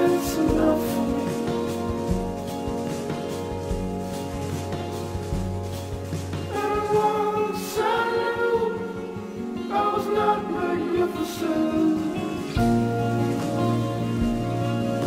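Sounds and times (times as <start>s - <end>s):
song with sung vocals: 0.0s - 3.1s, 6.3s - 13.6s.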